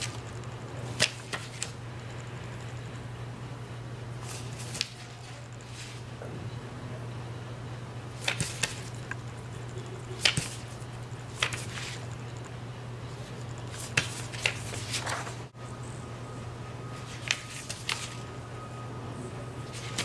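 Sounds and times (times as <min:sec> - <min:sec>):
steady low hum: 0:00.0 - 0:20.0
paper rustling and crackling: 0:00.9 - 0:01.8, 0:04.2 - 0:06.0, 0:08.2 - 0:09.1, 0:10.1 - 0:12.2, 0:13.6 - 0:15.5, 0:17.0 - 0:18.2, 0:19.7 - 0:20.0.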